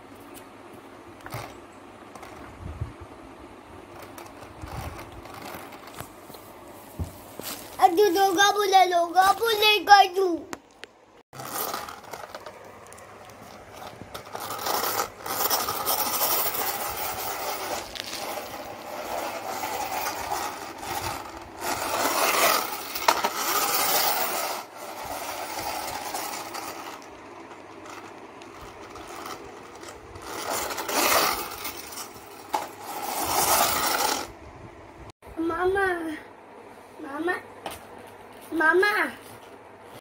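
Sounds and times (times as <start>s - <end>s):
toy car wheels rolling on tiles: 1.2s - 2.5s, 3.9s - 6.1s, 11.4s - 34.4s.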